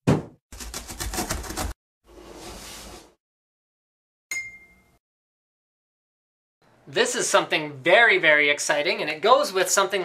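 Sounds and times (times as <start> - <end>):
bright ding: 4.3 - 5.0.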